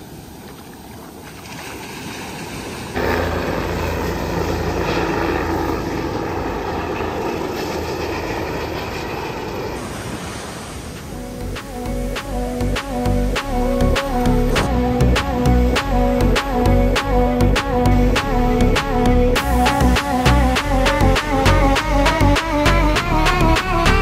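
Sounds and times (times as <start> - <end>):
surf washing: 0.0 - 13.0.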